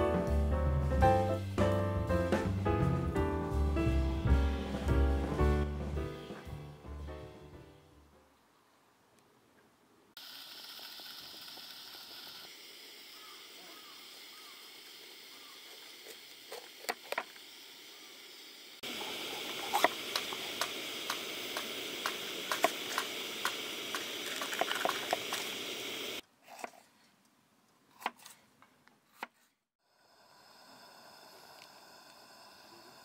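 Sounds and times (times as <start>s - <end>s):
food sizzling and popping: 10.2s - 26.2s, 30.5s - 33.0s
utensils clicking and knocking: 19.4s - 25.7s.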